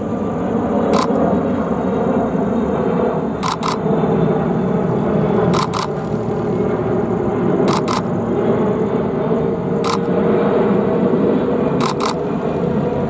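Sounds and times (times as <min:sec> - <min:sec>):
jet engines roaring overhead: 0:00.0 - 0:13.0
camera shutter clicks: 0:01.0 - 0:01.2, 0:03.4 - 0:03.8, 0:05.5 - 0:06.0, 0:07.7 - 0:08.1, 0:09.8 - 0:10.1, 0:11.8 - 0:12.2.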